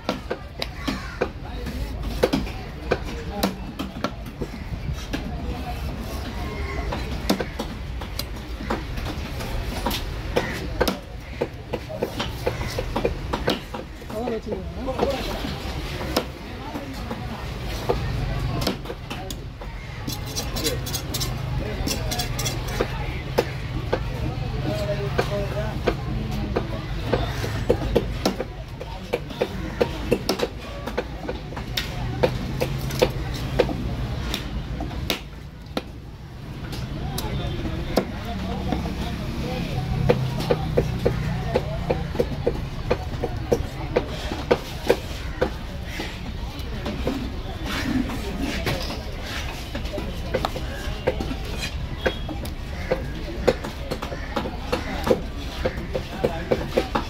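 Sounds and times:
knife scraping fish scales: 20.1 - 22.8
knife chopping on wooden block: 50.3 - 57.0.

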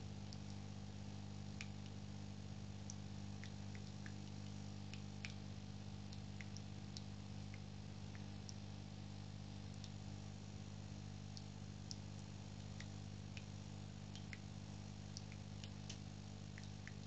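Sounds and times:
light ticks and clicks: 0.2 - 0.7, 2.8 - 5.4, 6.1 - 8.6, 11.3 - 13.5, 14.1 - 14.5, 15.1 - 17.0.

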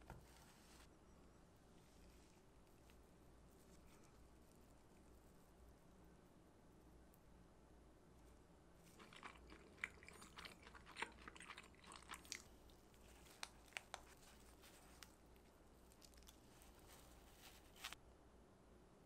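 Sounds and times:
bread crust crackling: 8.8 - 18.0.

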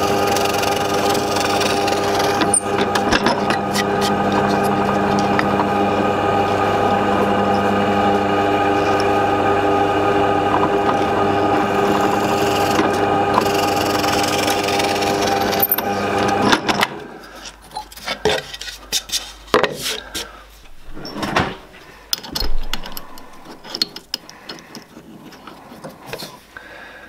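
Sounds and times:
drill bit boring into wood: 0.0 - 5.6, 10.4 - 16.4
drill press motor humming: 0.0 - 16.9.

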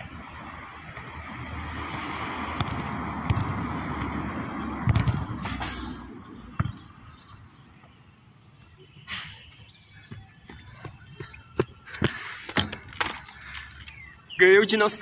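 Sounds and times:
football kicks thudding: 2.6 - 3.6, 4.8 - 5.6, 6.6 - 6.9.

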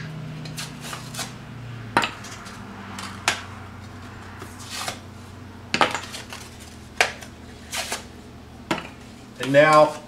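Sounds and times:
paper peeling from drywall: 7.6 - 8.1.

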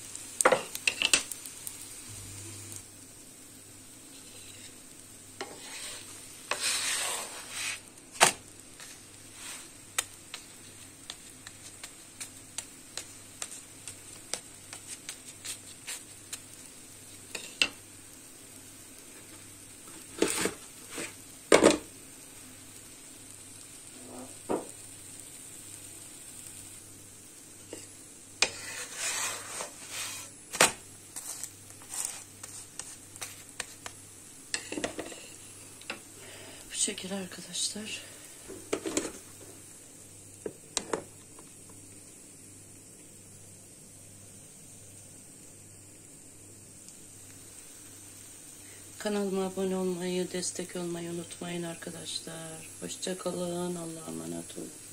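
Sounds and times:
flatbread sizzling in a pan: 0.0 - 54.9
knocks and scrapes on a pan: 5.4 - 8.4, 27.7 - 33.9, 34.6 - 35.3.

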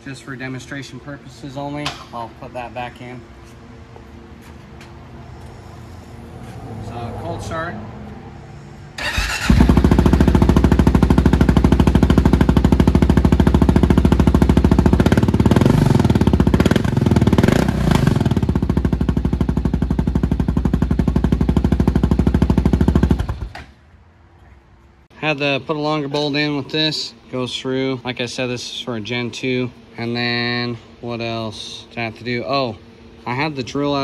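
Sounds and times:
motorcycle engine cranking: 9.0 - 10.5
motorcycle engine idling: 9.0 - 23.6.

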